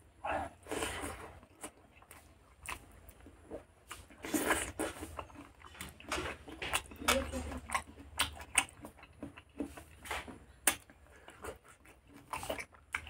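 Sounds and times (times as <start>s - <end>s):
person chewing food: 0.0s - 13.0s
wet chewing and smacking: 0.3s - 13.0s.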